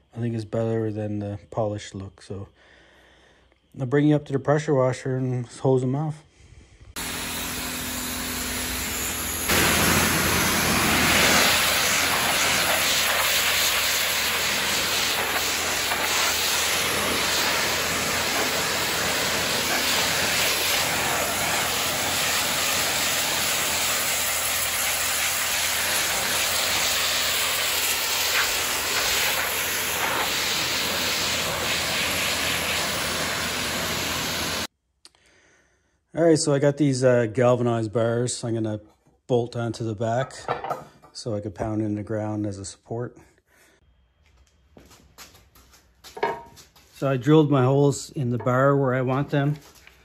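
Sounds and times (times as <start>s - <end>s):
pressure washer jet hissing: 7.0s - 34.7s.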